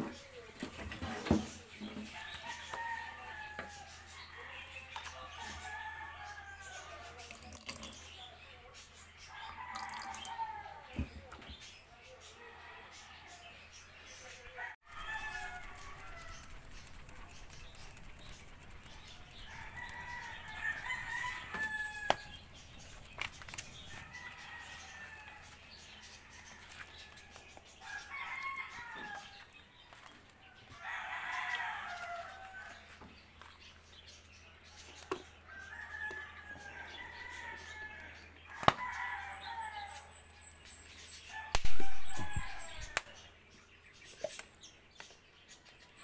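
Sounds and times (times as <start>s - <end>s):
chickens crowing: 2.0s - 7.2s, 9.3s - 11.3s, 14.5s - 33.1s, 34.8s - 40.2s, 41.3s - 43.2s.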